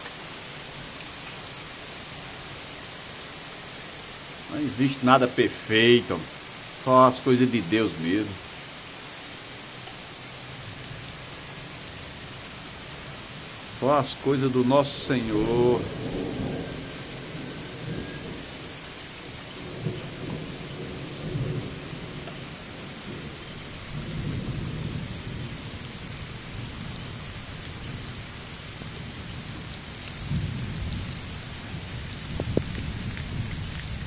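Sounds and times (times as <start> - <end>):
heavy rain on pavement: 0.0 - 34.0
low thunder rumbles: 13.4 - 34.0.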